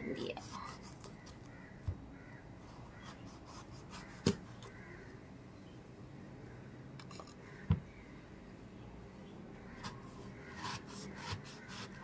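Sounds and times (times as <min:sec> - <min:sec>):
knife cutting through eggplant: 0:03.0 - 0:04.7, 0:09.8 - 0:12.0.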